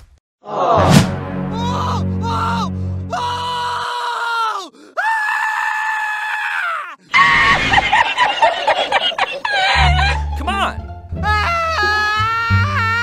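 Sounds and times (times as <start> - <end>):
cartoon donkey screaming: 3.2 - 7.7, 9.4 - 10.2
cartoon commotion with squeals: 5.2 - 7.9.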